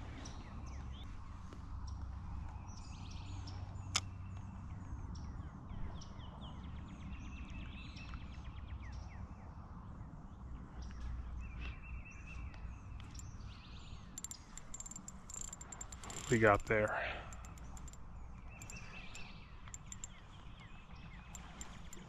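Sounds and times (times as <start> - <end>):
birds calling and singing: 10.7 - 22.0
sharp click: 14.2 - 20.2, 21.3 - 22.0.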